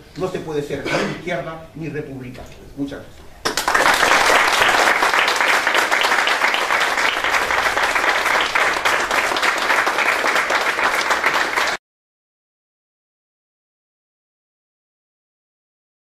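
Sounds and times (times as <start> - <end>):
audience applauding: 3.4 - 11.8.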